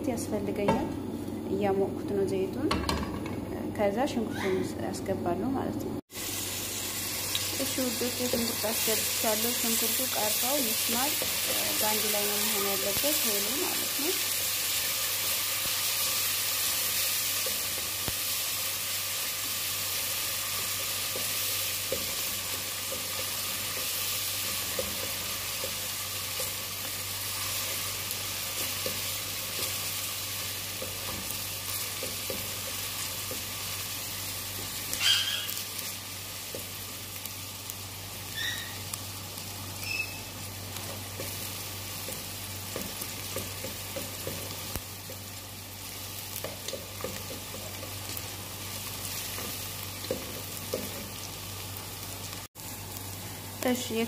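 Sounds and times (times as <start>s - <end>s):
onions sizzling in oil: 6.1s - 54.0s
high squeak: 35.0s - 35.6s, 38.3s - 38.8s, 39.8s - 40.3s.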